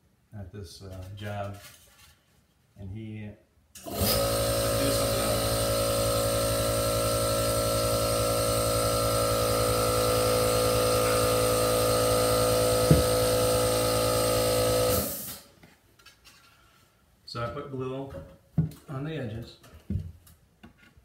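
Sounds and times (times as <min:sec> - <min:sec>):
machine motor humming and whining: 0:03.9 - 0:15.1
knock: 0:12.8 - 0:13.2, 0:18.6 - 0:18.8.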